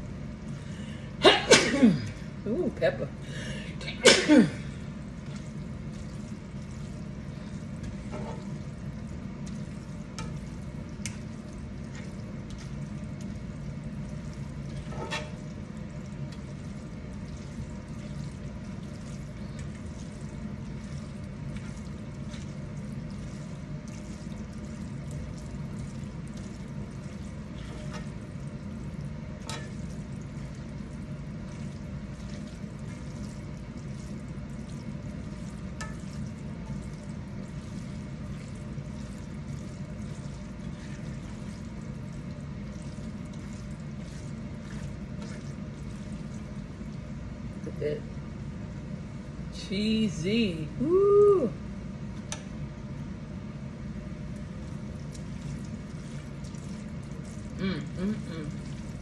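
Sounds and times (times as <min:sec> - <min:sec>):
steady low hum: 0:00.0 - 0:59.0
pasta sizzling in a skillet: 0:05.5 - 0:46.5
spatula scraping and tapping pan: 0:07.9 - 0:08.6, 0:10.2 - 0:10.4, 0:14.8 - 0:15.5, 0:29.4 - 0:29.8.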